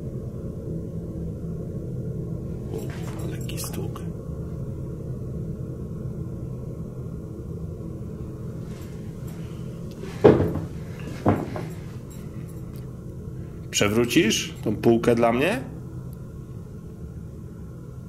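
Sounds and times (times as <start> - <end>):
steady low hum: 0.0 - 18.0
sharp ringing knocks: 10.0 - 12.7.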